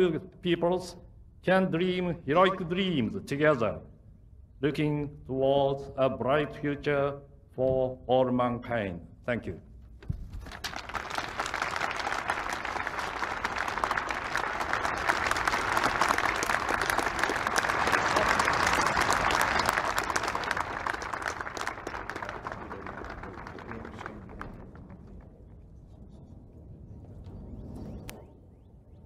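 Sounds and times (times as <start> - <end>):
crowd applauding: 10.4 - 25.3.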